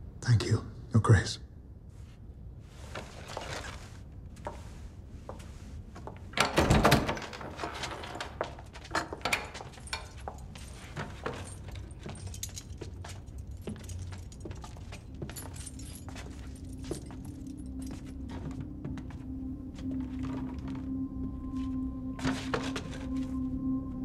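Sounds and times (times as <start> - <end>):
heavy door opening with thud: 6.4 - 10.2.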